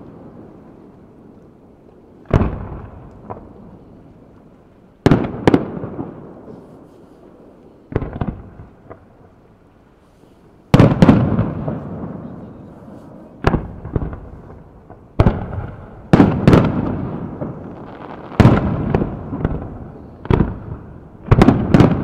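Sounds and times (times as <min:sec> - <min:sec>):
small firework pops: 0:00.0 - 0:09.2, 0:13.4 - 0:22.0
firework shells booming: 0:02.2 - 0:03.8, 0:07.9 - 0:09.1, 0:10.7 - 0:12.6, 0:13.3 - 0:22.0.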